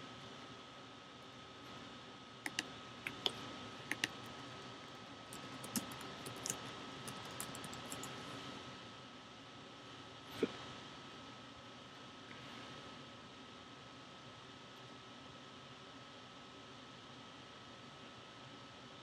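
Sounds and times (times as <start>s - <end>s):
keyboard key clicks: 2.5s - 4.2s, 5.4s - 8.1s.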